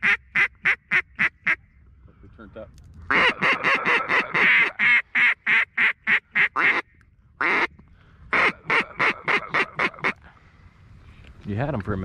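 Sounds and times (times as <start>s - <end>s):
duck call quacks: 0.0s - 1.6s, 3.1s - 7.7s, 8.3s - 10.2s.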